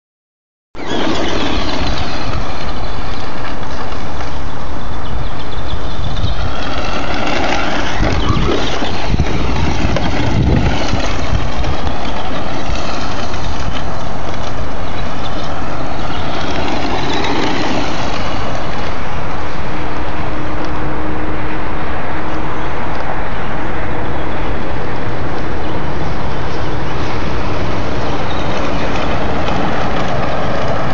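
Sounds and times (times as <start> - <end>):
rc truck motor revving: 0.8 - 4.6, 5.3 - 19.8
loud steady rushing noise: 0.8 - 30.9.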